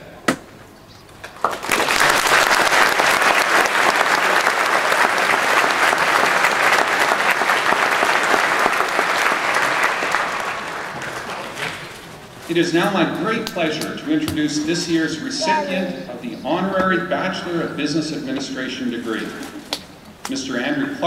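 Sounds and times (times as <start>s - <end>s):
audience applauding: 1.3s - 12.2s.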